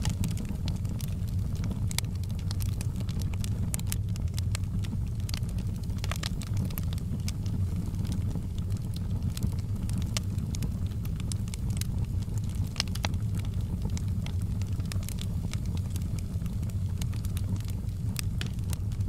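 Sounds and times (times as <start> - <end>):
logs crackling and popping: 0.0 - 19.0
low rumble of flames: 0.0 - 19.0.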